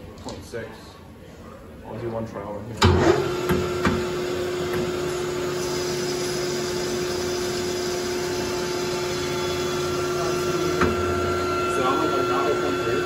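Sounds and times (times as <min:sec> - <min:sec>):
lathe cutting metal: 0:02.9 - 0:13.0
metal lathe humming: 0:03.2 - 0:13.0.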